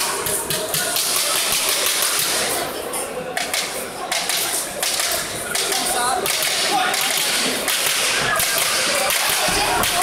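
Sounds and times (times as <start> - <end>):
crowd din in echoing hall: 0.0 - 10.0
sharp slaps and smacks: 3.4 - 10.0
people shouting: 8.1 - 10.0.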